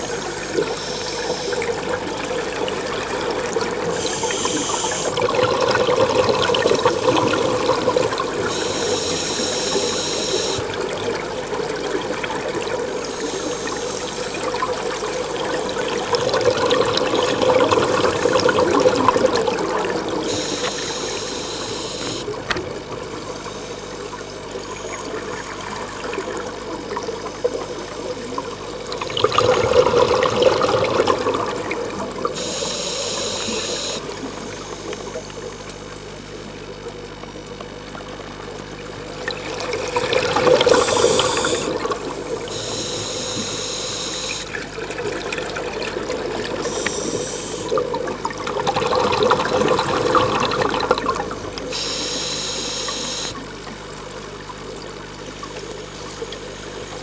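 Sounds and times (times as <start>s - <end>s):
exhaled bubbles underwater: 0.0s - 57.0s
regulator inhalation hiss: 46.7s - 47.8s.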